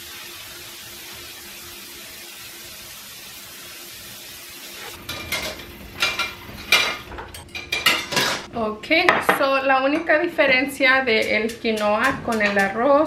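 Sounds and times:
metal pots clattering: 5.0s - 8.5s.

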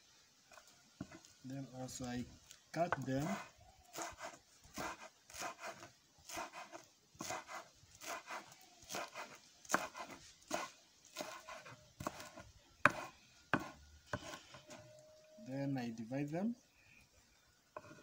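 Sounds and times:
knife chopping herbs: 2.8s - 14.8s.

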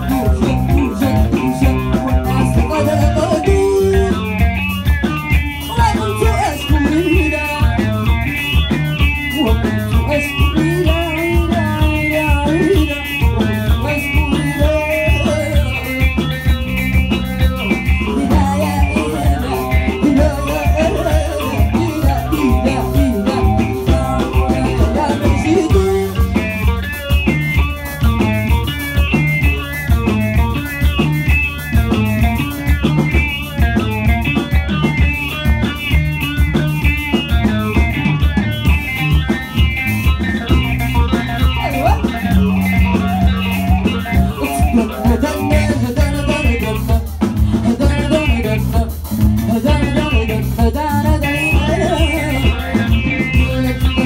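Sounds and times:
woman singing: 0.0s - 4.3s, 9.4s - 16.0s, 17.9s - 26.4s, 44.3s - 54.0s
bass guitar: 0.0s - 54.0s
drum kit beat: 0.0s - 54.0s
electric guitar lead: 0.0s - 54.0s.

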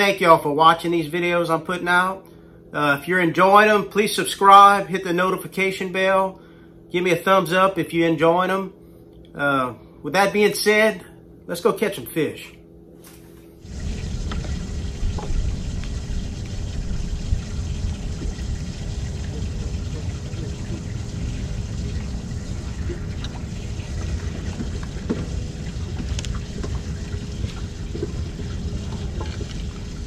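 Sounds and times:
faint steady hum: 0.0s - 30.0s
wind rumbling on microphone: 13.6s - 30.0s.

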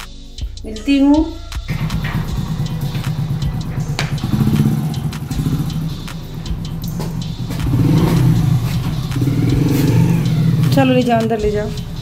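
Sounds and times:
motorcycle engine at low revs: 1.7s - 12.0s.

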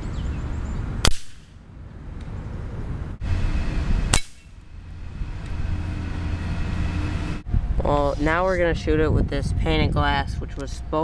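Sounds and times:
air rifle shots: 1.0s - 1.6s.

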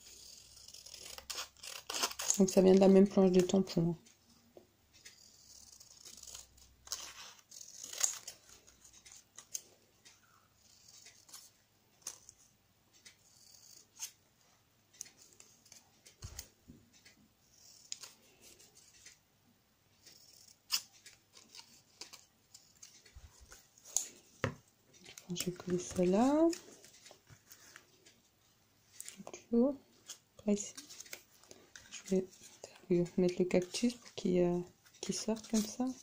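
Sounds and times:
scissors snipping paper: 0.1s - 3.7s, 5.1s - 9.6s, 10.6s - 12.4s, 20.1s - 24.2s, 25.0s - 27.2s, 35.0s - 36.0s
paper rustling: 34.9s - 36.0s.

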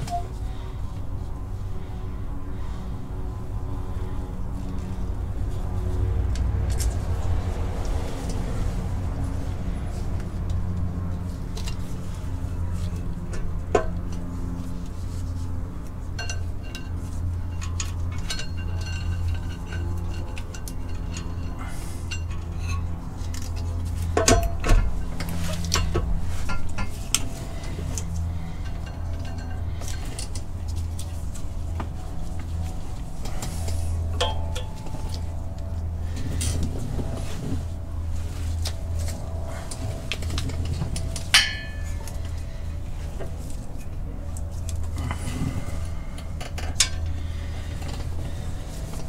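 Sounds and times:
metal clutch parts clinking: 9.1s - 36.9s, 38.4s - 49.0s.

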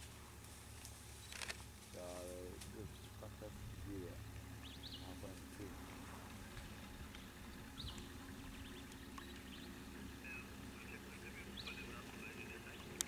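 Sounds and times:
steady low hum: 0.0s - 13.0s
high bird chirps: 4.6s - 5.2s, 7.2s - 13.0s.

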